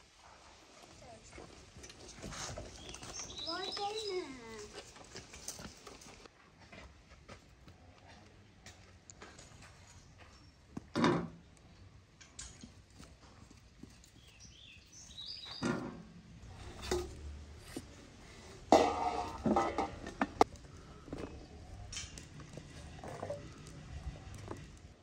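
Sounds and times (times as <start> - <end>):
metal bowl and tray clattering: 18.7 - 20.5.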